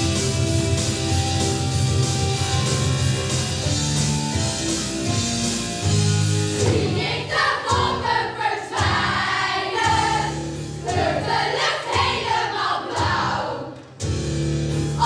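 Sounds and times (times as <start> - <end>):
instrumental backing: 0.0 - 7.2
young performers singing together: 6.6 - 14.0.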